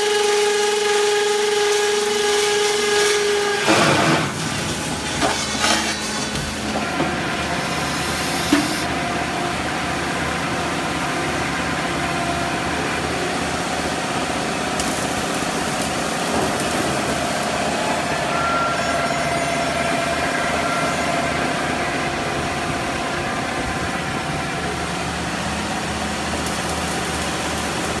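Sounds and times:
steady machine whine: 0:00.0 - 0:28.0.

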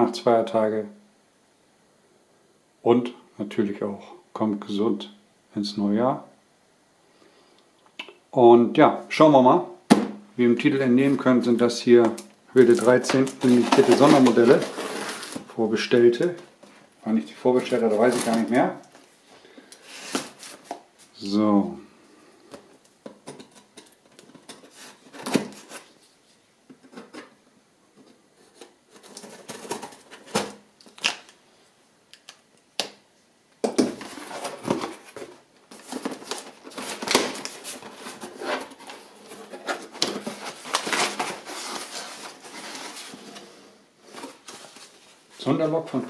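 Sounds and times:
packing paper rustling and crackling: 0:12.0 - 0:16.9, 0:17.5 - 0:19.0, 0:19.7 - 0:20.9, 0:33.9 - 0:45.6
box flaps opening: 0:12.6 - 0:15.5.

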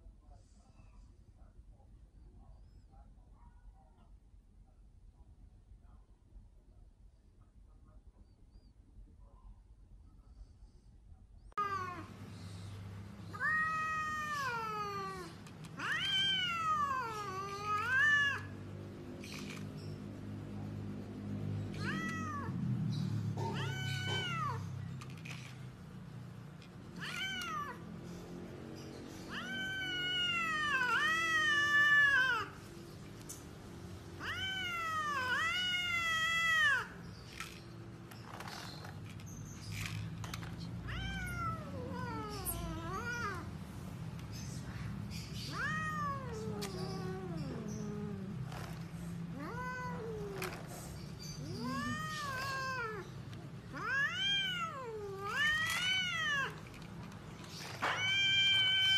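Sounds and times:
cat meowing: 0:13.2 - 0:19.6, 0:21.7 - 0:22.7, 0:23.3 - 0:24.8, 0:26.9 - 0:28.0, 0:29.1 - 0:32.6, 0:34.1 - 0:37.0, 0:40.6 - 0:43.5, 0:45.2 - 0:56.7, 0:57.7 - 0:58.9.

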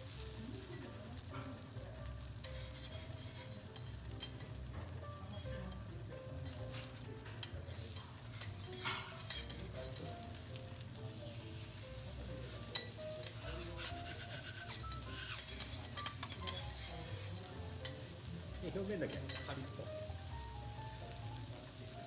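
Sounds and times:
beef sizzling on griddle: 0:00.0 - 0:22.0
metal spatula clicking and scraping: 0:02.4 - 0:04.6, 0:06.4 - 0:10.3, 0:12.7 - 0:18.3, 0:19.1 - 0:19.6.

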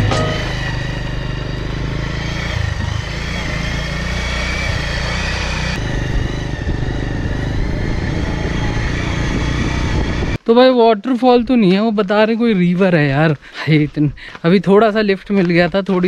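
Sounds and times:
vehicle engine running: 0:00.0 - 0:10.4.

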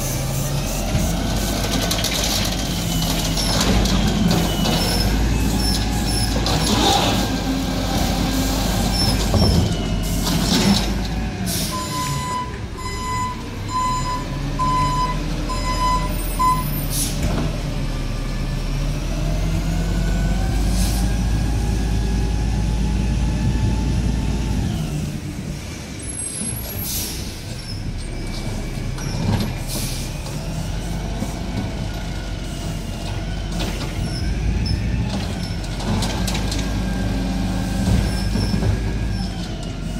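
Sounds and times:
truck engine revving: 0:00.0 - 0:12.1
air brakes hissing: 0:11.4 - 0:12.2, 0:16.1 - 0:17.2, 0:26.2 - 0:27.7, 0:29.6 - 0:31.4.

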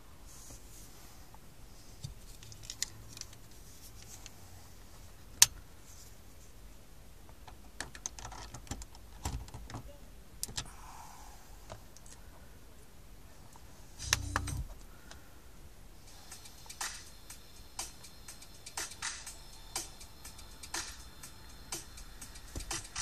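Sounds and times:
plastic clicks and rattles: 0:07.5 - 0:09.8.

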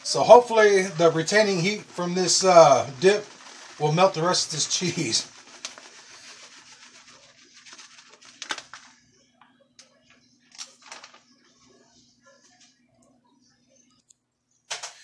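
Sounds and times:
cheese rustling as sprinkled: 0:00.0 - 0:09.3, 0:10.5 - 0:12.6.

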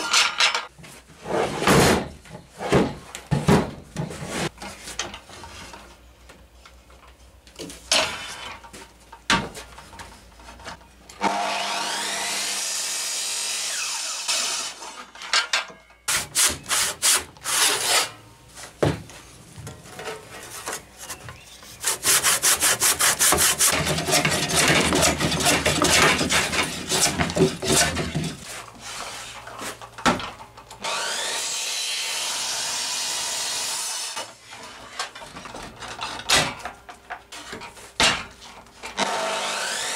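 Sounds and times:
circular saw cutting wood: 0:11.2 - 0:15.1, 0:30.8 - 0:34.3, 0:39.0 - 0:39.9
handsaw rasping through wood: 0:21.8 - 0:28.0.

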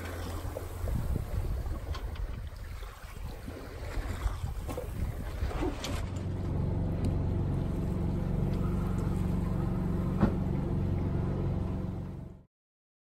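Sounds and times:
boat engine humming: 0:00.0 - 0:12.5.

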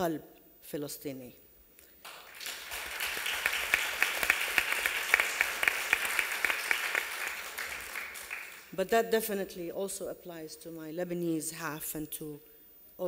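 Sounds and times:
audience applauding: 0:02.0 - 0:08.7.

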